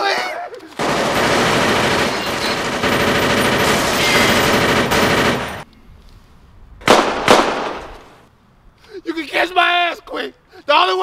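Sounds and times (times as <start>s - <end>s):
rapid automatic gunfire: 0.8s - 5.6s
sharp gunshot: 6.8s - 8.1s.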